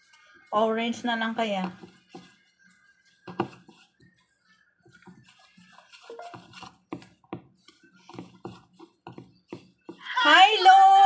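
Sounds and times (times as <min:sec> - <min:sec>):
spatula scraping ceramic bowl: 0:04.9 - 0:07.0.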